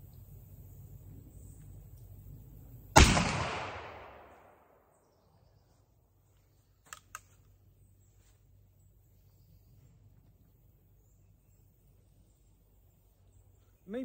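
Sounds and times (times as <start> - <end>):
rifle shot echoing: 2.9 - 4.9
rifle clicks: 6.8 - 7.5.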